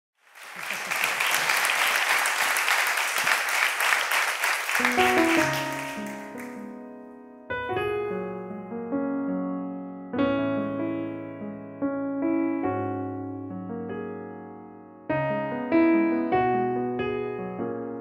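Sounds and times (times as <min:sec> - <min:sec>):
audience applause: 0:00.2 - 0:06.6
electric piano chords: 0:04.8 - 0:18.0.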